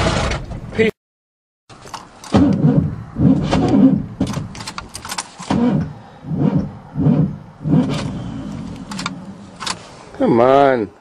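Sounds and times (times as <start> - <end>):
truck engine cranking: 1.7 - 10.1
sharp clicks: 7.8 - 9.8.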